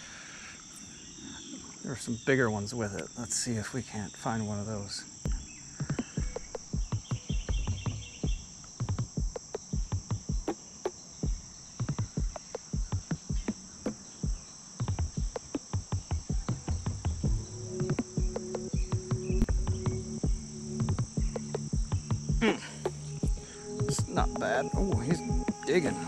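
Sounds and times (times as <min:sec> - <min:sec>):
insects shrilling: 0:00.0 - 0:26.0
soft low knocks: 0:14.3 - 0:25.6.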